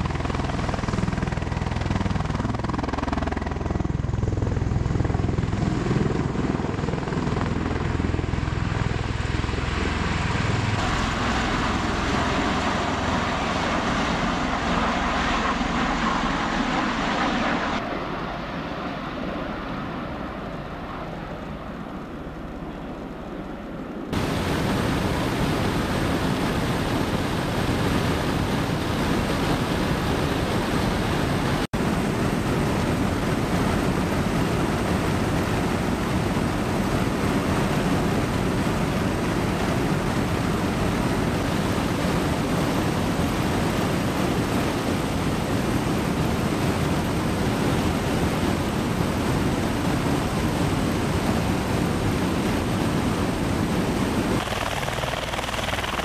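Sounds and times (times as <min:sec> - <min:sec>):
aircraft rotors and engines rushing: 0:00.0 - 0:56.0
wind rushing: 0:24.2 - 0:56.0.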